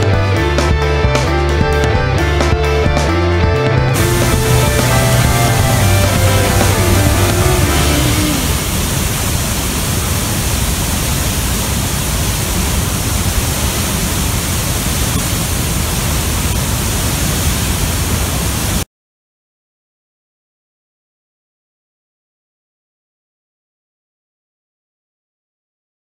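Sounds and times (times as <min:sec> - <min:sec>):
waterfall rushing: 0:04.0 - 0:18.8.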